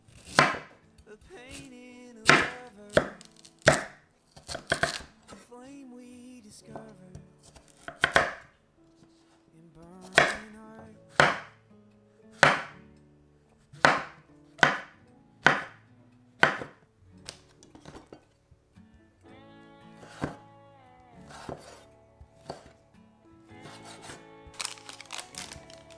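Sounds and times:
knife chopping on wooden board: 0.2 - 0.7, 2.3 - 5.1, 7.8 - 8.4, 10.1 - 10.5, 11.1 - 11.5, 12.4 - 12.7, 13.8 - 15.8, 16.4 - 16.8, 20.0 - 20.4, 21.3 - 21.8, 22.4 - 22.7.

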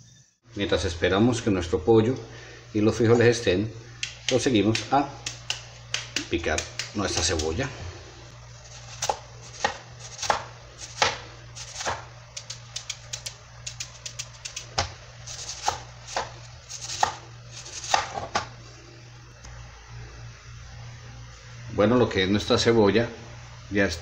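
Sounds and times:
knife chopping on plastic board: 4.0 - 7.5, 8.9 - 17.2, 17.8 - 18.5.

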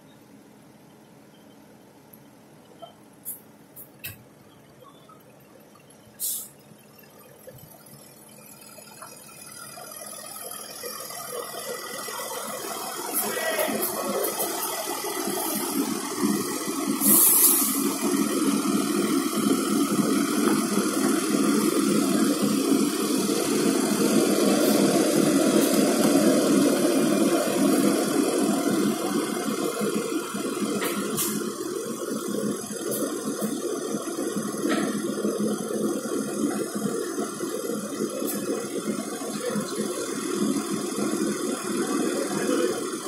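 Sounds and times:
tractor diesel engine running: 0.0 - 43.0
short hiss: 6.2 - 6.6, 17.0 - 17.8, 30.8 - 31.4.

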